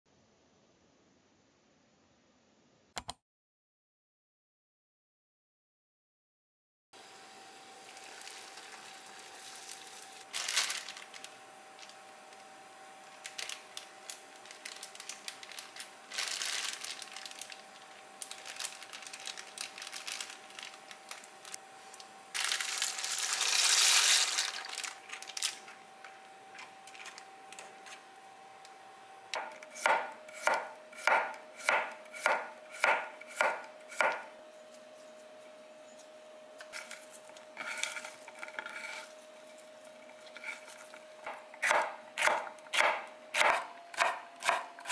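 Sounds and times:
water boiling in a pot: 0:07.0 - 0:10.3.

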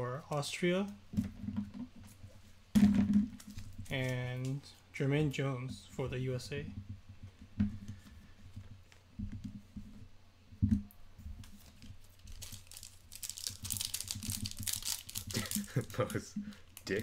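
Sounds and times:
card pack wrapper crinkling and tearing: 0:11.5 - 0:17.0.

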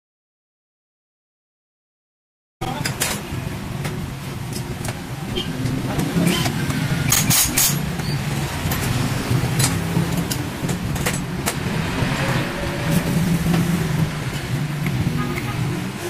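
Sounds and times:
vehicle engine humming: 0:02.6 - 0:16.0
metal tools clinking: 0:07.1 - 0:07.9.

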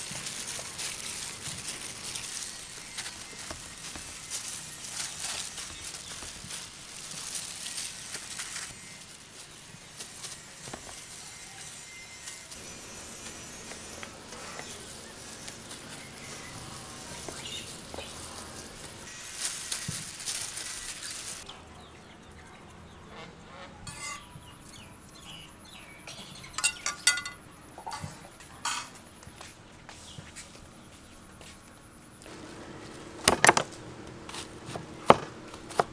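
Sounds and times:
rustling and squelching of meat: 0:00.0 - 0:21.5.

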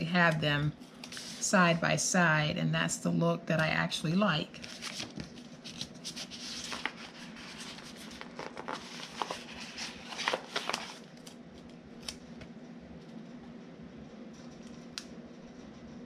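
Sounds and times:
sticker sheet rustling: 0:04.6 - 0:11.3.

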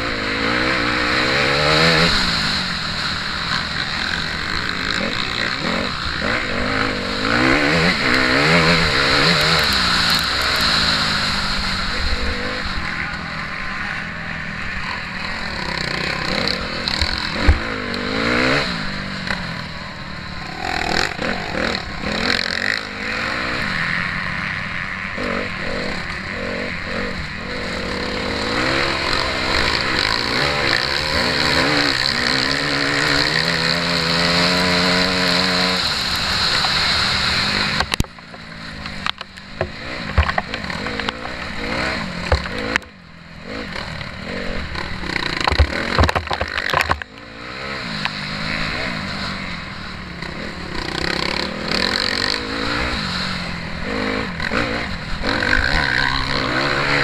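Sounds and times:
motocross bike engine revving: 0:00.0 - 0:57.0
bike knocking over rough ground: 0:45.3 - 0:47.1.

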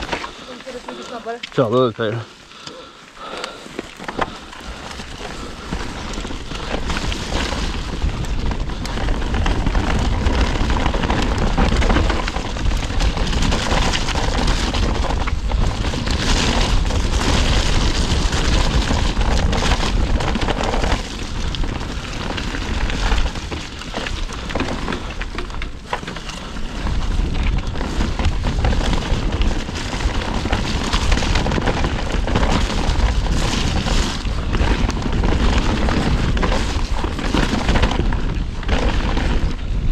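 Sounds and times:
bike tyre noise on dirt: 0:00.0 - 0:39.9
bike knocks and rattles: 0:03.3 - 0:39.9
wind buffeting microphone: 0:03.9 - 0:39.9.

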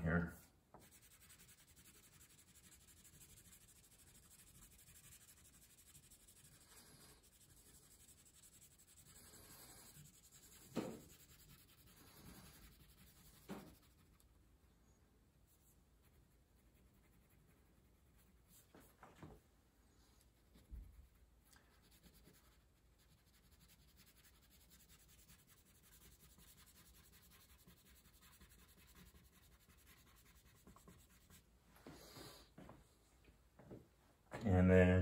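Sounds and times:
crayon rubbing on paper: 0:00.8 - 0:14.3, 0:15.5 - 0:18.7, 0:21.8 - 0:32.4.

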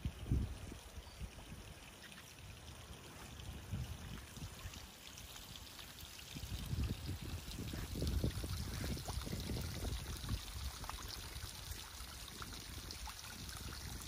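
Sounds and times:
wind buffeting microphone: 0:00.0 - 0:00.8, 0:03.4 - 0:04.7, 0:06.2 - 0:14.0.

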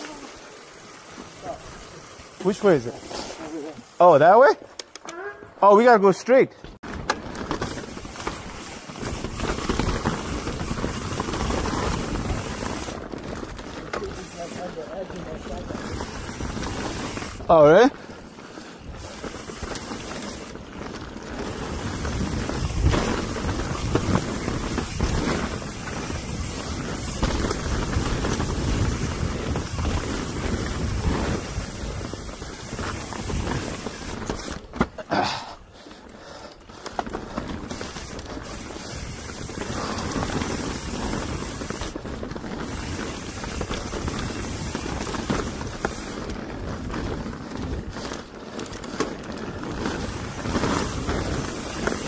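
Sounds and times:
bike rattling: 0:00.0 - 0:52.0
bike tyres on dirt: 0:00.0 - 0:52.0
wind buffeting microphone: 0:21.4 - 0:34.8.

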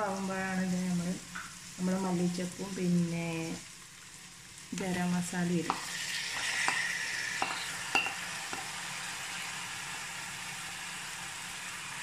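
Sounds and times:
chicken sizzling in pot: 0:00.0 - 0:12.0
spatula knocking pot: 0:07.4 - 0:08.7.

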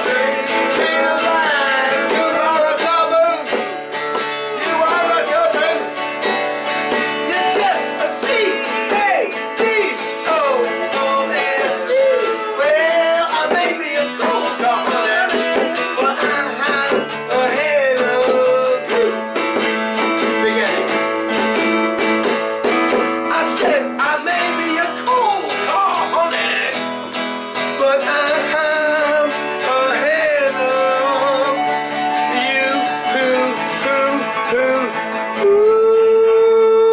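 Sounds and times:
hand drum: 0:00.0 - 0:27.7
strummed acoustic guitar: 0:00.0 - 0:36.9.

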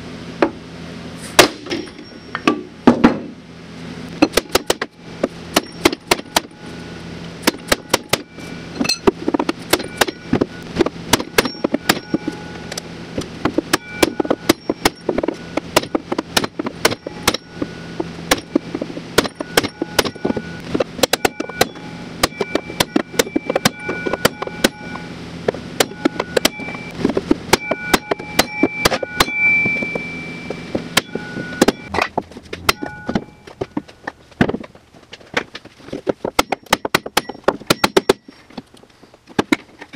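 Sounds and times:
hammer blows on metal: 0:13.5 - 0:32.0.

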